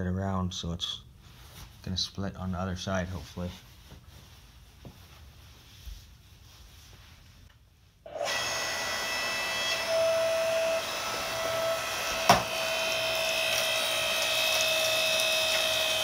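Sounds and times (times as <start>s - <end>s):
hydraulic log splitter whining: 8.1s - 16.0s.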